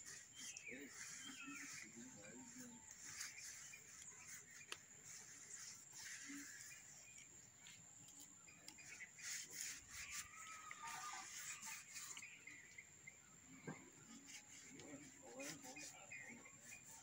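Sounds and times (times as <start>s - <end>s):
hand rubbing paste on stalk: 0.0s - 12.9s, 13.6s - 17.0s.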